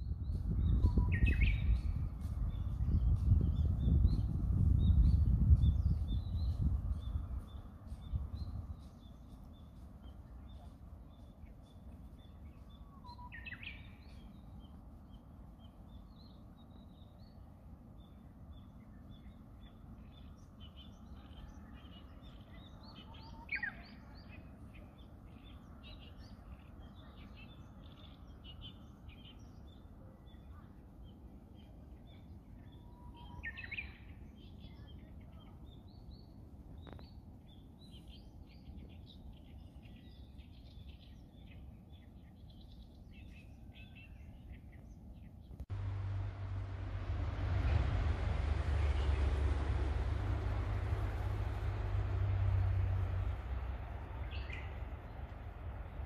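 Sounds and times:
faint low rumble: 0.0s - 56.0s.

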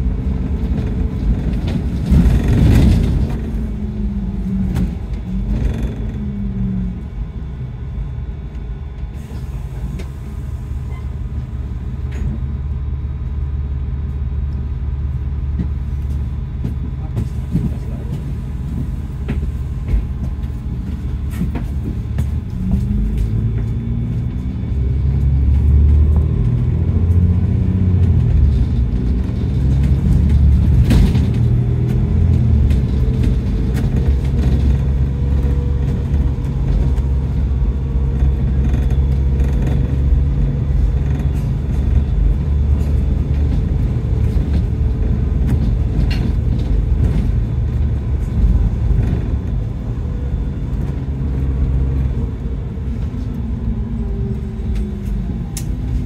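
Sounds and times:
bus engine rumble: 0.0s - 56.0s
engine whine rising in pitch: 22.5s - 46.0s.

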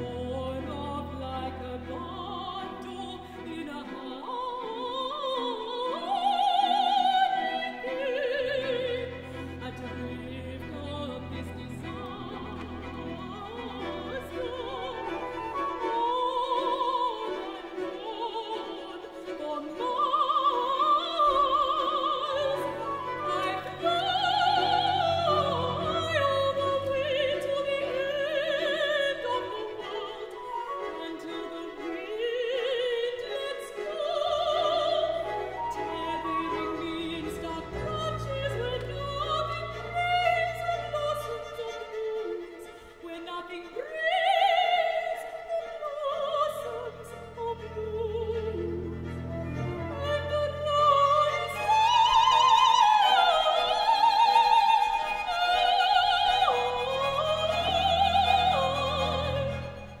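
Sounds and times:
operatic singing with vibrato: 0.0s - 60.0s
orchestral strings sustained notes: 0.0s - 60.0s.

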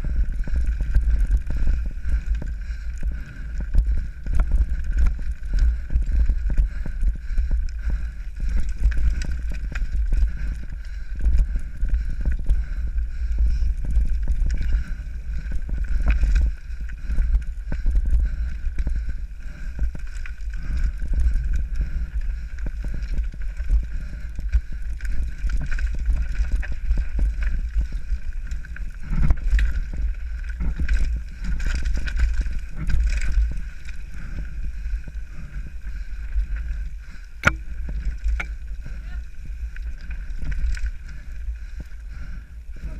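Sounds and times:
bike rattling over rocks: 0.0s - 42.9s
wind rumble on microphone: 0.0s - 42.9s.

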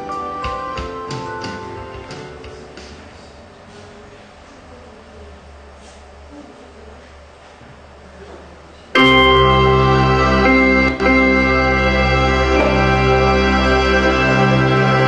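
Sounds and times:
music with long held chords: 0.0s - 3.2s, 9.0s - 15.0s
low room noise: 0.0s - 15.0s.

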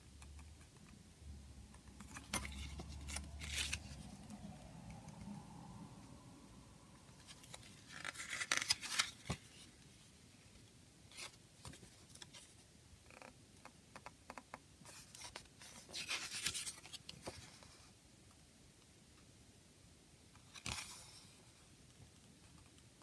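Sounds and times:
paper pages rustling: 2.0s - 4.5s, 7.2s - 9.8s, 14.9s - 17.9s, 20.4s - 21.2s.

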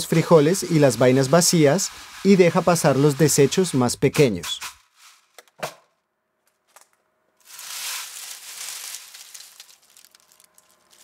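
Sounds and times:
dry bean pods rustling in sieve: 0.0s - 4.0s, 7.4s - 11.0s.

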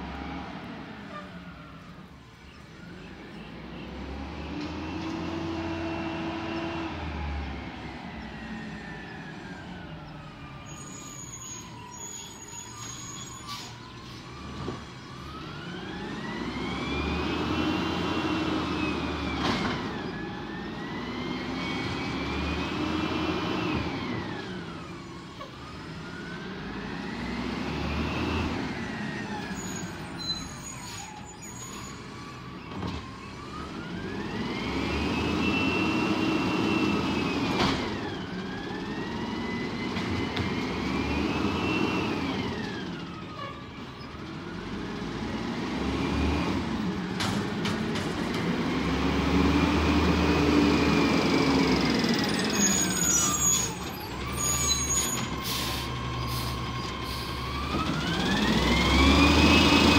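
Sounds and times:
garbage truck engine revving: 44.2s - 59.9s.

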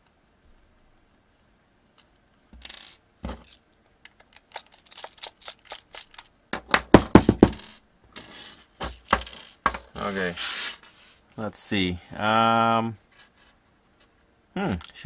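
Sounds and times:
screw and screwdriver clattering on desk: 8.8s - 10.0s.

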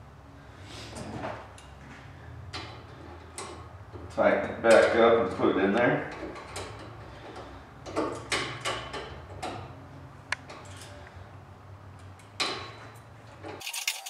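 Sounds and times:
hand tools clicking on metal: 13.6s - 14.0s.

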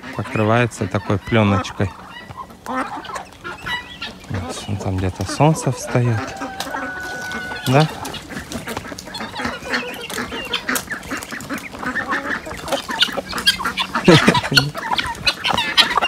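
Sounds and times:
poultry clucking: 0.0s - 16.0s.

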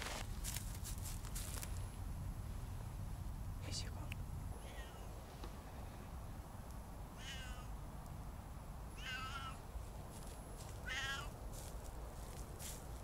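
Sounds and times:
cat meowing: 7.2s - 7.7s, 9.0s - 9.6s, 10.8s - 11.4s.

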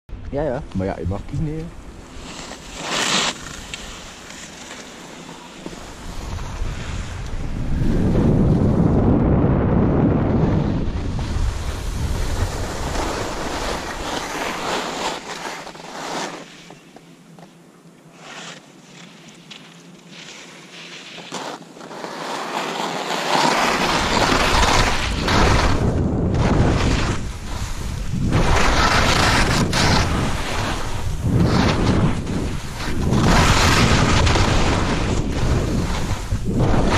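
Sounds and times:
skis hissing and scraping on snow: 0.8s - 9.0s, 10.4s - 17.4s, 18.1s - 36.9s
wind on microphone: 6.0s - 14.0s, 24.0s - 36.9s.

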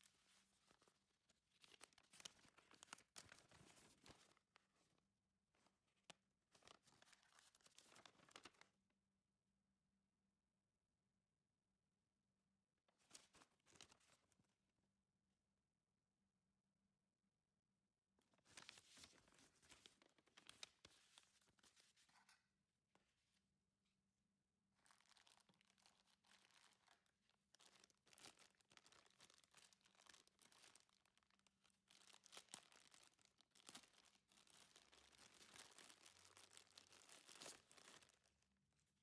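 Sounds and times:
paper rustling: 0.0s - 4.9s, 18.4s - 22.4s
plastic bag crinkling: 27.6s - 38.3s.

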